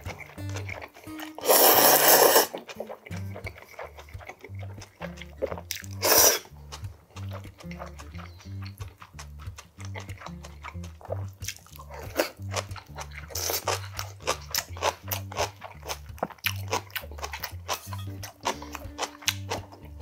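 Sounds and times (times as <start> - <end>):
background music bass line: 0.0 - 20.0
crunching and chewing: 0.0 - 20.0.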